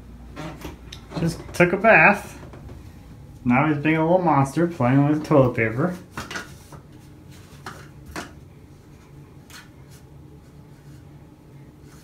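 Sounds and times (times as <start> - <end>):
steady low hum: 0.0 - 12.0
toilet paper rustling: 3.6 - 11.2.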